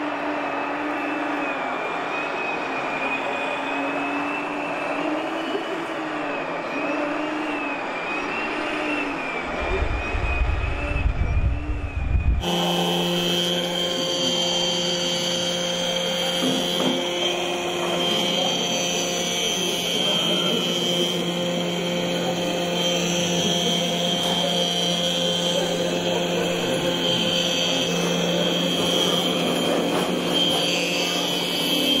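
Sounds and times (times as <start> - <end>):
model roller whine: 0.0 - 32.0
model truck drive whining: 0.0 - 32.0
deep rumble: 9.5 - 12.4.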